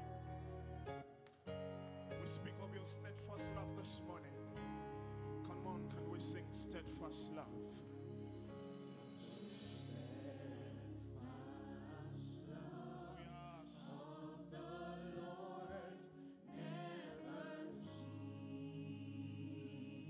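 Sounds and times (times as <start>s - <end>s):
choir singing: 0.0s - 1.2s, 2.2s - 20.0s
accompaniment chords: 0.0s - 15.6s.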